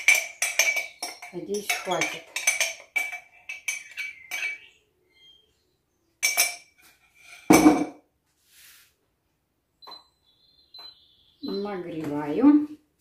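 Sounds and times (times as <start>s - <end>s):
utensil clinking against jar: 0.0s - 4.7s.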